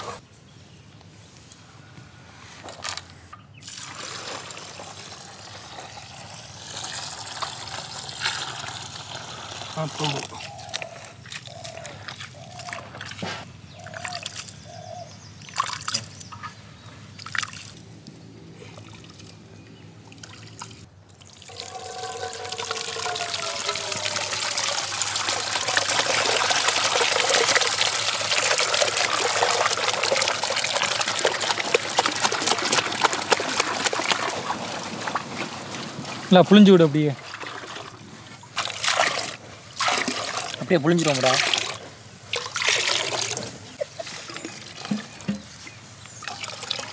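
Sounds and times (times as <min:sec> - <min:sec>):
liquid trickling into pot: 0:03.6 - 0:10.5, 0:20.1 - 0:35.2, 0:46.2 - 0:46.9.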